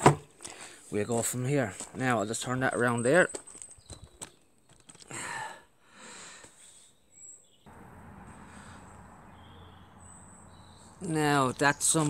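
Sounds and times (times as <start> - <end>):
steady low hiss: 7.7 - 12.0.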